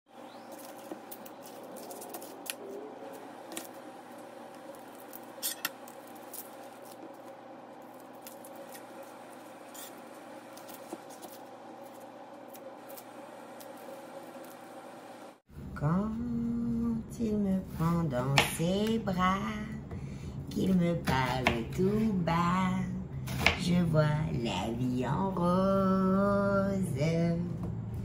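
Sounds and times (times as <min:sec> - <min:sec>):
steady hum: 0:00.1 - 0:28.0
knife scraping onion on cutting board: 0:09.6 - 0:14.5.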